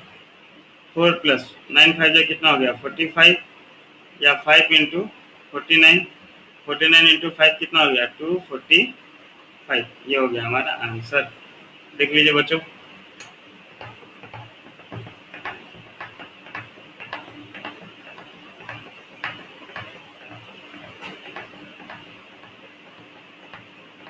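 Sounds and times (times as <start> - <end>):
faint steady hum: 0.0 - 24.0
soft knocks: 13.8 - 23.8.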